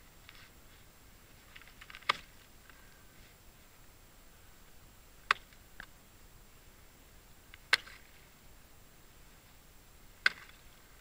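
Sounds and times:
axe chopping ice: 10.2s - 10.6s.

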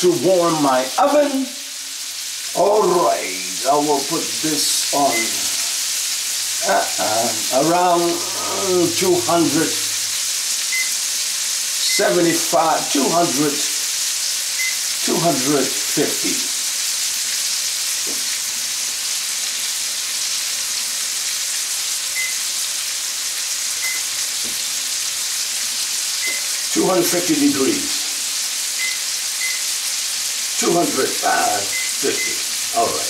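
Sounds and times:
steaks sizzling in a frying pan: 0.0s - 33.0s.

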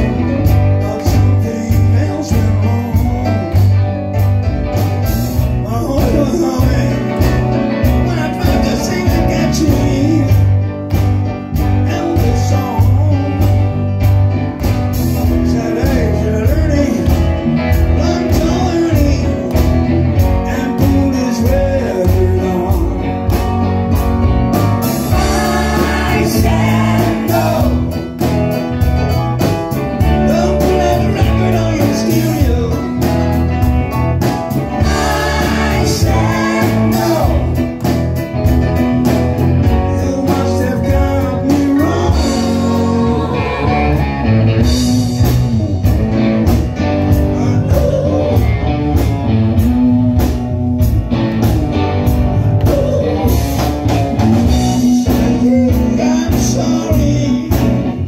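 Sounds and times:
live rock band playing: 0.0s - 58.0s
women singing: 25.1s - 27.8s, 34.8s - 37.5s, 42.4s - 44.0s.

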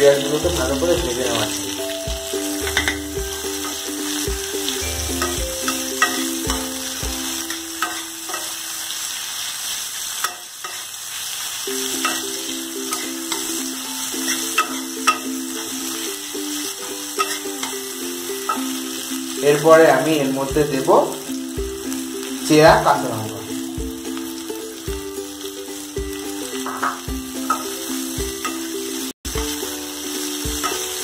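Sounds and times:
onions and spices sizzling in oil: 0.0s - 31.0s
metal spatula scraping pan: 7.4s - 8.6s, 11.9s - 13.6s, 17.0s - 17.8s.

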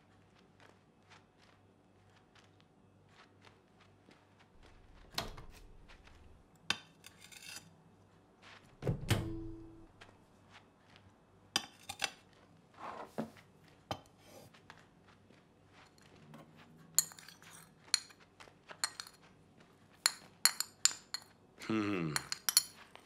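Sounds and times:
crockery scraping: 11.6s - 14.5s.

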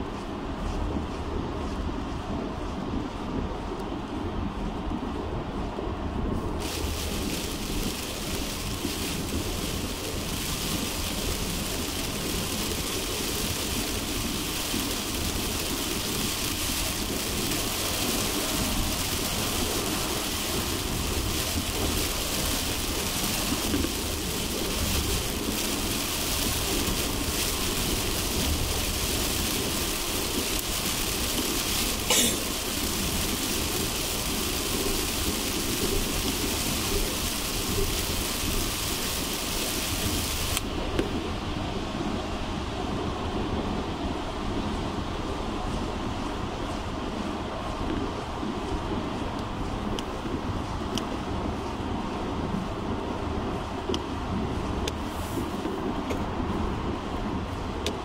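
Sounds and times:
heavy rain and spray: 0.0s - 58.0s
tyre and road rumble: 6.0s - 41.3s.

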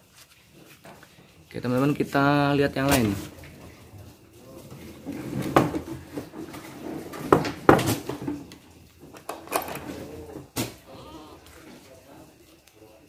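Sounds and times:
wooden door shutting: 9.2s - 10.8s.

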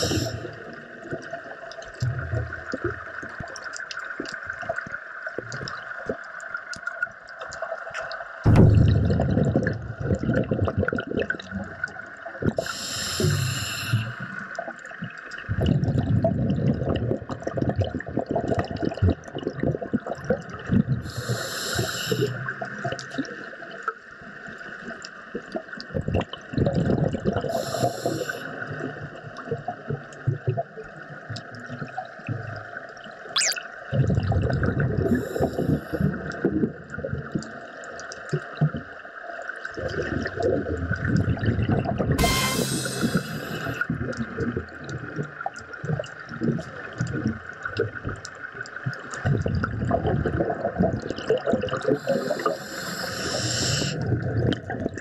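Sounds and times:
regulator hissing inhalation: 0.0s - 0.5s, 12.6s - 14.2s, 21.1s - 22.3s, 42.2s - 43.8s, 52.0s - 54.0s
exhaled bubbles rumbling: 0.0s - 6.3s, 8.4s - 21.5s, 25.3s - 55.0s.

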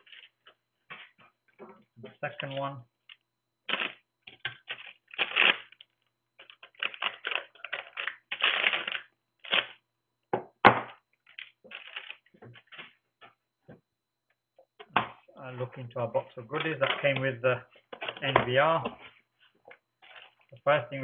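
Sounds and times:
plastic bag crinkling: 3.7s - 4.0s, 4.6s - 9.8s, 11.2s - 12.8s, 20.0s - 20.6s.

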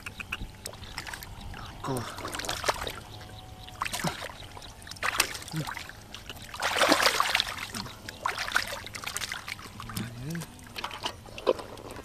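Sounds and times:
hands splashing in muddy water: 6.5s - 11.6s.

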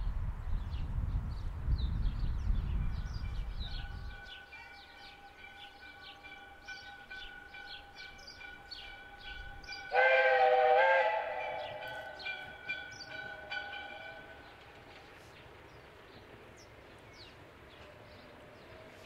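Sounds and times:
steam locomotive whistle: 9.2s - 14.4s
small birds chirping: 11.6s - 13.8s, 14.4s - 19.0s.

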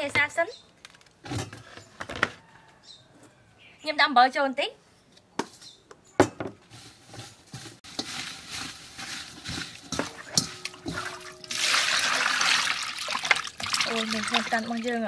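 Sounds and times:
wet squelching and scraping: 6.8s - 15.0s
water running into a bowl: 9.6s - 15.0s.

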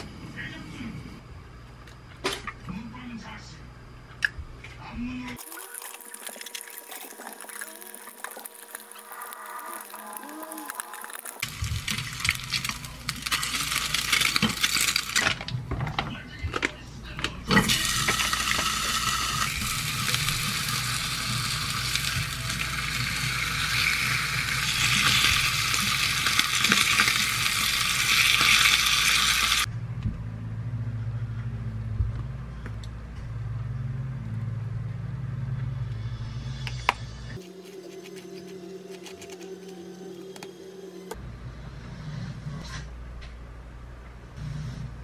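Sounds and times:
low hum: 0.0s - 45.0s
food sizzling in frying pan: 5.4s - 15.2s, 17.6s - 29.7s.

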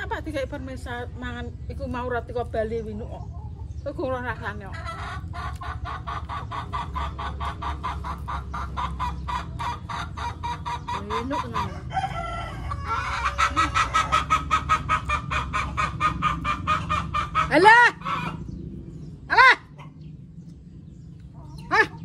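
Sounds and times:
chicken clucking: 4.4s - 18.6s.

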